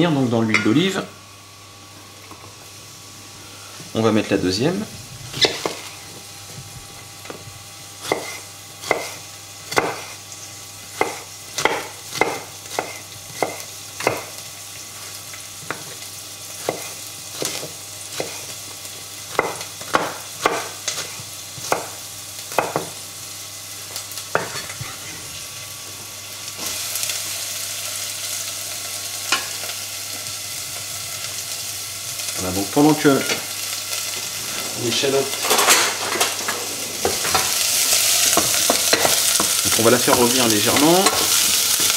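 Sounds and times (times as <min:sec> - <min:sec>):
shallot sizzling in oil: 0:05.2 - 0:06.3, 0:06.9 - 0:41.9
knife chopping on cutting board: 0:08.0 - 0:10.1, 0:11.0 - 0:14.3, 0:16.6 - 0:18.5, 0:19.3 - 0:22.9.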